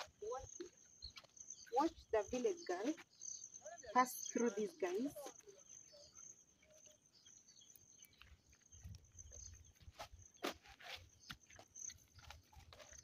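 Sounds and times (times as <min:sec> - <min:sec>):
flip-flop footsteps on dirt: 0:00.0 - 0:03.2, 0:04.0 - 0:13.0.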